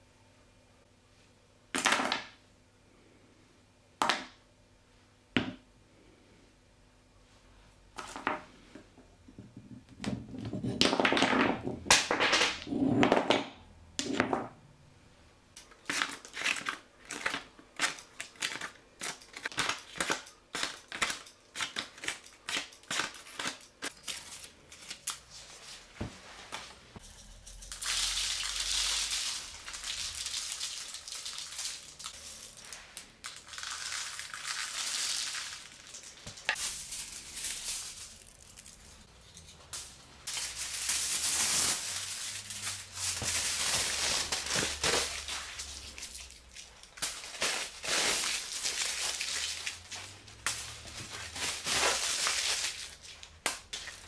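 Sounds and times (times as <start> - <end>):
crumpled paper and foil crinkling: 15.6 - 25.9, 27.0 - 54.0.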